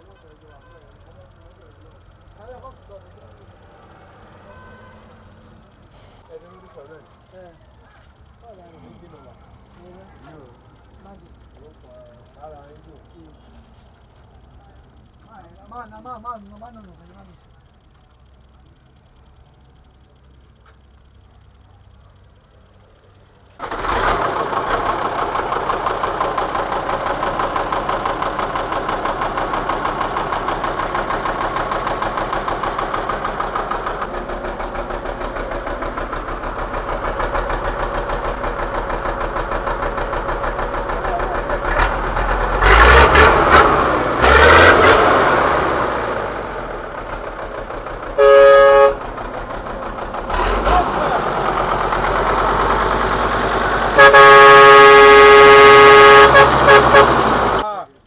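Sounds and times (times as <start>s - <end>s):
diesel engine idling: 0.0s - 58.0s
vehicle horn toot: 4.4s - 5.2s, 48.2s - 49.1s, 53.9s - 57.6s.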